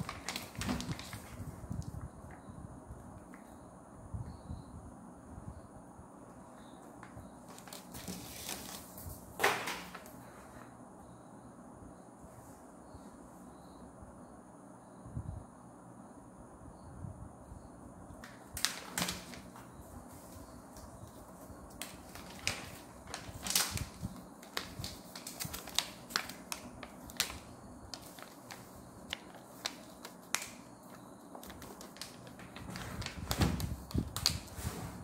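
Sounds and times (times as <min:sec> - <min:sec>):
paper sheets snapping and flicking: 0:07.5 - 0:10.1, 0:18.2 - 0:19.6, 0:21.8 - 0:34.5.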